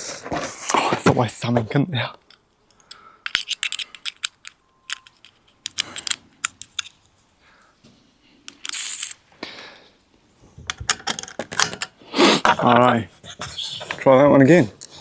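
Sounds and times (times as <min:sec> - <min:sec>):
rifle bolt clicks and rattles: 0:02.2 - 0:07.0, 0:10.7 - 0:11.9.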